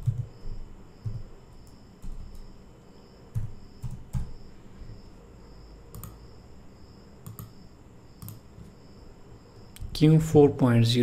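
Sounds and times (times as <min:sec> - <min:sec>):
keyboard and mouse clicks: 0:03.4 - 0:04.3, 0:05.9 - 0:06.2, 0:07.2 - 0:07.6, 0:08.2 - 0:08.7.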